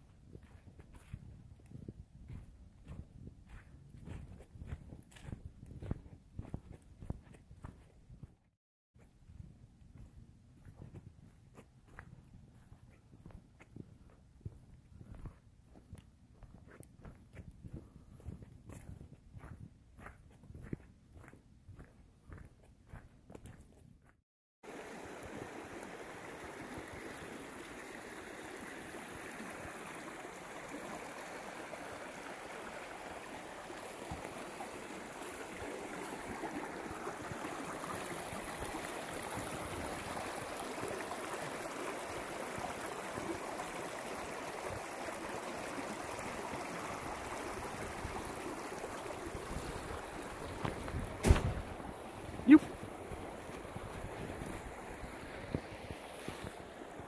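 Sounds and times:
creek rushing over rocks: 0:24.6 - 0:57.0
loud thumps: 0:51.2 - 0:51.7.

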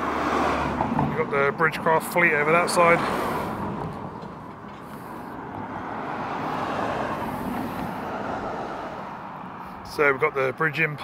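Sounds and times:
motor vehicle passing by: 0:00.0 - 0:01.1, 0:02.4 - 0:09.8.

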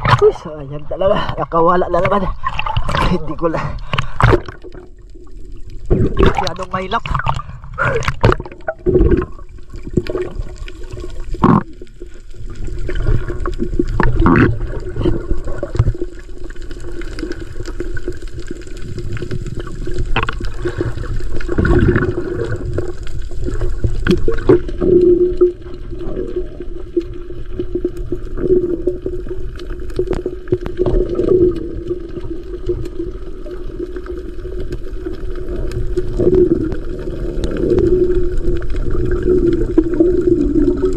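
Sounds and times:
muffled underwater water noise: 0:00.0 - 0:40.9
water splashing against camera: 0:00.0 - 0:40.9.

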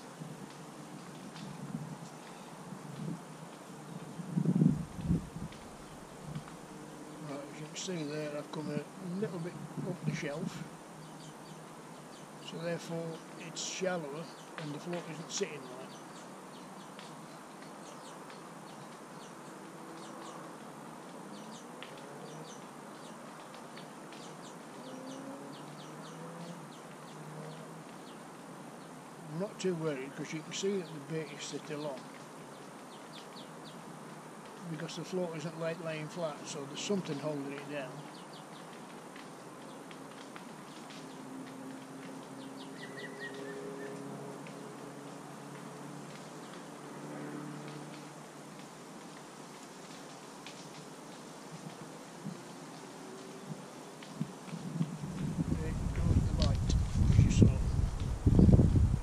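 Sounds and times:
small birds chirping: 0:00.0 - 0:59.0
steady outdoor hiss: 0:00.0 - 0:59.0
faint bird chirps: 0:42.4 - 0:44.0.

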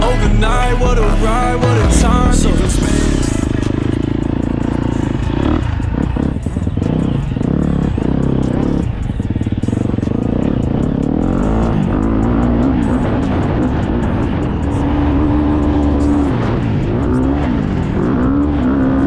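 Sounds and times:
motocross engine revving: 0:00.0 - 0:19.0.

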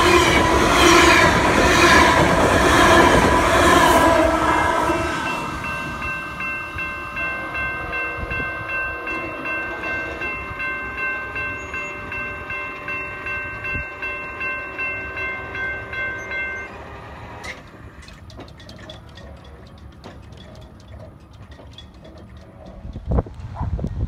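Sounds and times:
crossing warning bell ringing: 0:00.0 - 0:23.3
train rumbling: 0:00.0 - 0:24.0
wind on microphone: 0:22.6 - 0:24.0.

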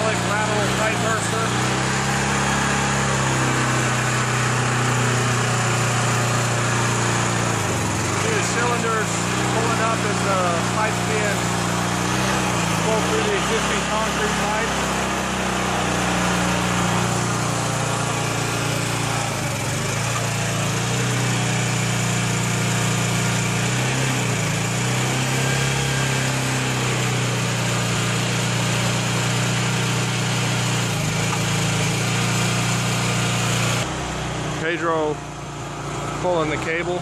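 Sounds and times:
hydraulic power pack engine droning: 0:00.0 - 0:37.0.

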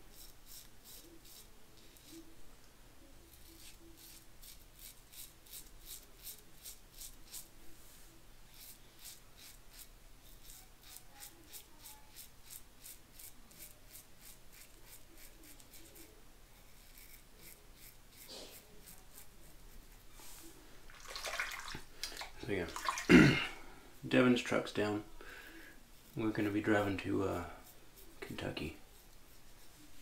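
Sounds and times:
razor scraping stubble: 0:00.1 - 0:02.3, 0:03.3 - 0:07.5, 0:08.5 - 0:22.6, 0:26.0 - 0:30.0.

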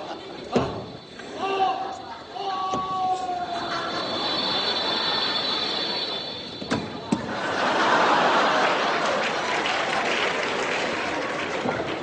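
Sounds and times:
audience laughing: 0:03.5 - 0:06.5, 0:07.2 - 0:12.0
audience applauding: 0:07.3 - 0:12.0.

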